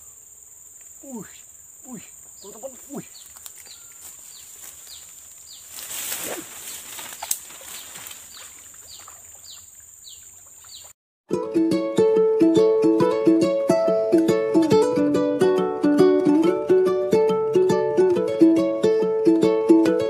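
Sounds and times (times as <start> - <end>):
high insect drone: 0.0 - 10.9
water splashing while wading: 5.9 - 10.7
ukulele music: 11.3 - 20.0.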